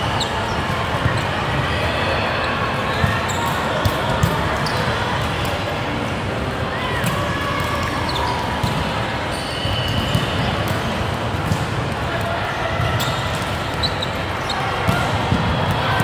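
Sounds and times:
volleyballs slapping and bouncing: 0:03.1 - 0:05.8, 0:07.0 - 0:09.1, 0:09.9 - 0:16.0.

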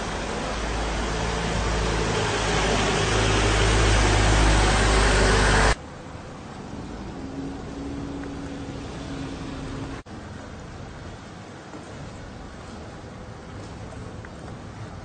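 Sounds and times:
boat engine droning: 0:00.0 - 0:11.6
wind and water rushing: 0:00.0 - 0:12.6.

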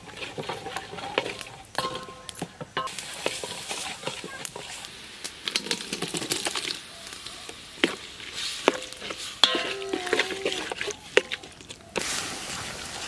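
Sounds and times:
wet scraping stir: 0:00.0 - 0:13.0
metal clinks against a pot: 0:00.5 - 0:04.6, 0:08.7 - 0:11.5.

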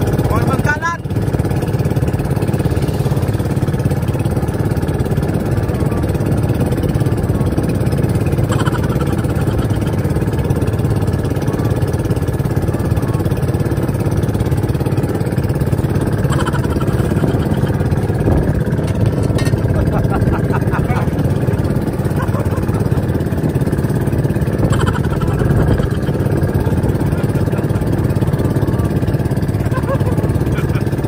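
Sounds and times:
boat engine running: 0:00.0 - 0:31.0
wind on microphone: 0:17.0 - 0:19.2, 0:23.3 - 0:27.1.

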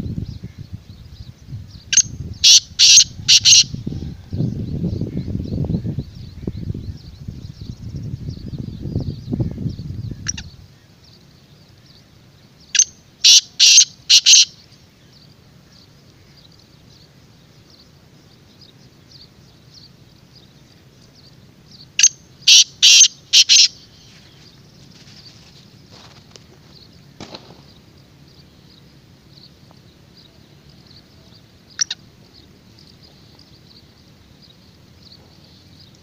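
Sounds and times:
bird harsh grating call: 0:02.4 - 0:03.7, 0:12.8 - 0:14.5, 0:22.0 - 0:24.2.

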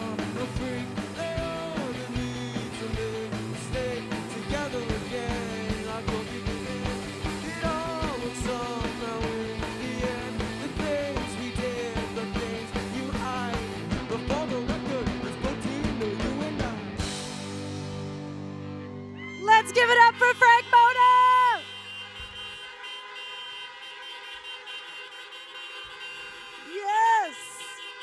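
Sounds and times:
drum kit beat: 0:00.0 - 0:18.1
electric bass: 0:00.0 - 0:20.2
electric guitars: 0:00.0 - 0:20.6.

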